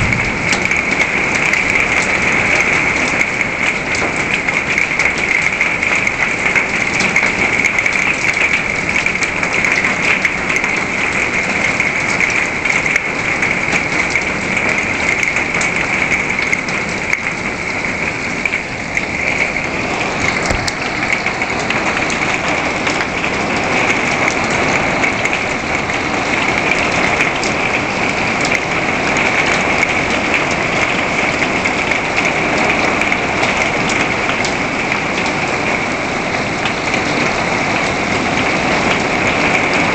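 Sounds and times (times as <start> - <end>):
heavy rain hiss: 0.0 - 4.4
hailstones striking wooden deck: 20.3 - 22.2.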